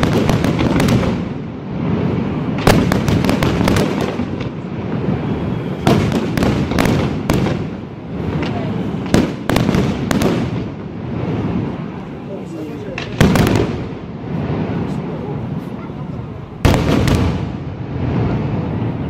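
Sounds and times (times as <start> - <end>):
fireworks booming and crackling: 0.0 - 19.0
sharp firework reports: 0.0 - 19.0.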